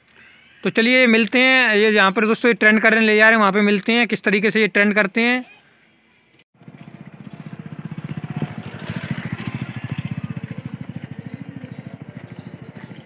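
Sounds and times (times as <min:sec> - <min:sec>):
small engine puttering: 0:06.6 - 0:13.0.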